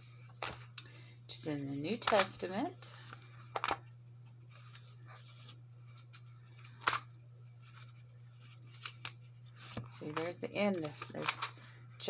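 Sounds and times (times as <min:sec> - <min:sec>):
steady low hum: 0:00.0 - 0:12.0
paper pages rustling: 0:04.5 - 0:11.7.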